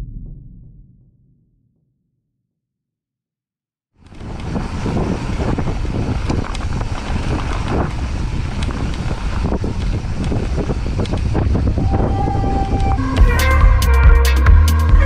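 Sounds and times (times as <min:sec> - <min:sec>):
bike clicks and rattles: 0:04.0 - 0:11.5
wind buffeting microphone: 0:04.0 - 0:14.2.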